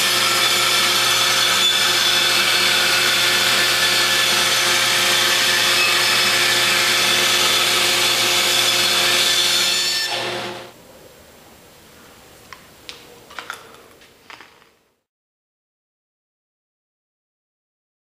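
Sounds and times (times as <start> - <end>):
bandsaw cutting wood: 0.0 - 10.7.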